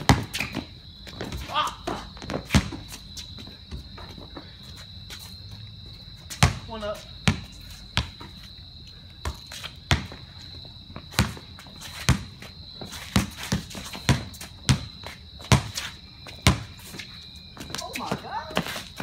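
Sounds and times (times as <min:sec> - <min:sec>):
basketball bouncing on concrete: 0:00.0 - 0:04.5, 0:06.2 - 0:08.5, 0:09.2 - 0:17.0, 0:17.6 - 0:19.0.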